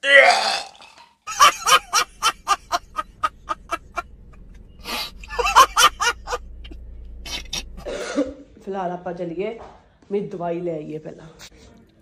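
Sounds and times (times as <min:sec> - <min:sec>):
man laughing hard: 0:01.3 - 0:04.0, 0:04.9 - 0:06.4.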